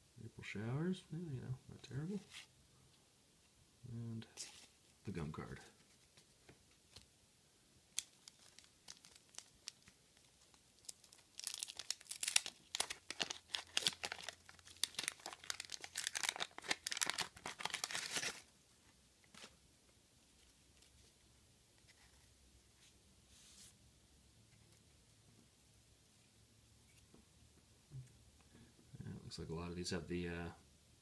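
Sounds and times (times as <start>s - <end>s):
card pack torn and crinkled: 7.9s - 18.5s.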